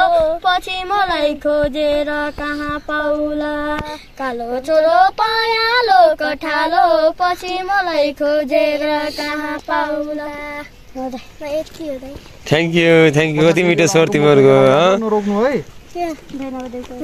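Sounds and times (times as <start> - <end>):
young children singing: 0.0 - 12.2.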